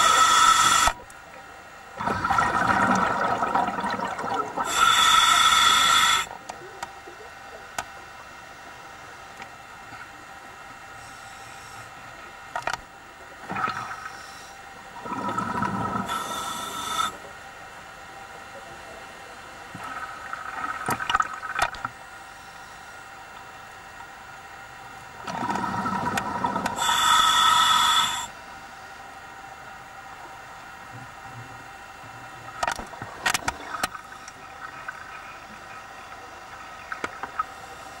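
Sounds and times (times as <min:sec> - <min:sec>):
underwater bubbling and hiss: 0:00.0 - 0:28.6, 0:29.2 - 0:38.0
faint steady hum: 0:00.0 - 0:38.0
regulator bubbles bubbling: 0:01.9 - 0:04.9, 0:13.4 - 0:14.1, 0:14.9 - 0:16.3, 0:19.7 - 0:22.0, 0:25.2 - 0:26.8, 0:32.5 - 0:37.5.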